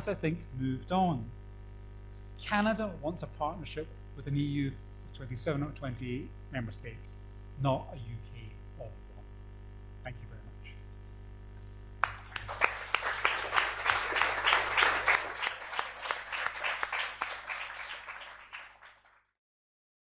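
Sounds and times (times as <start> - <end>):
audience applauding: 12.0 - 19.3.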